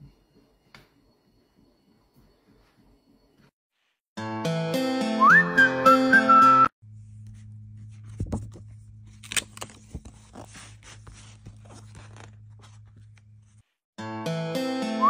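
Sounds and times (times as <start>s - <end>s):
music: 4.2s - 6.8s, 14.0s - 15.0s
paper pages rustling: 7.3s - 13.8s.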